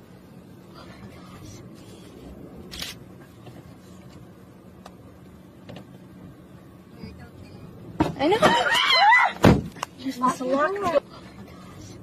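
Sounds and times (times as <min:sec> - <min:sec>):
vehicle engine running: 0:00.0 - 0:08.5.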